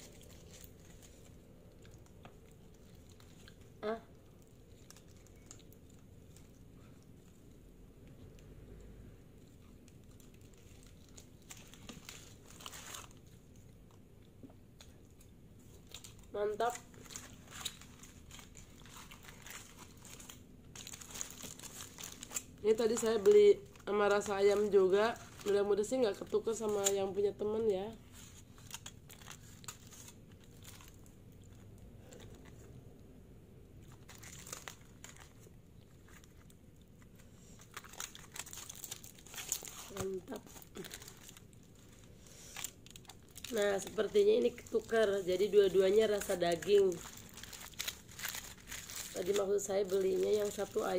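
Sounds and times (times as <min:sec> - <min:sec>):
aluminium foil crinkling: 0:00.0 - 0:07.6, 0:09.4 - 0:32.8, 0:33.8 - 0:50.9
soft chewing: 0:00.0 - 0:22.6.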